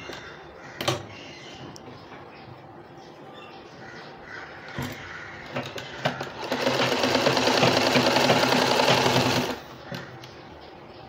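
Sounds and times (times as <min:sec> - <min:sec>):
sewing machine stitching: 0:05.7 - 0:09.6.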